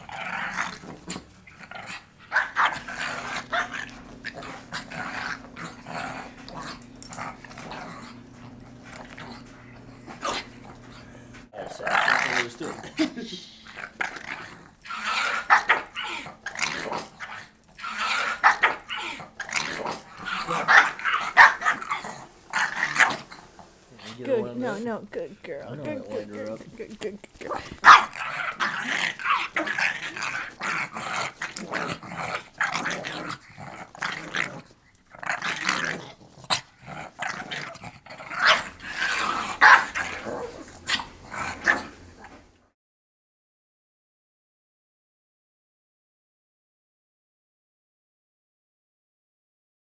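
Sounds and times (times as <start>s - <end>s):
small dog growling and barking: 0.0s - 24.8s, 27.4s - 42.6s
dog barking: 20.4s - 21.8s, 27.8s - 28.2s, 38.4s - 38.7s, 39.6s - 40.0s.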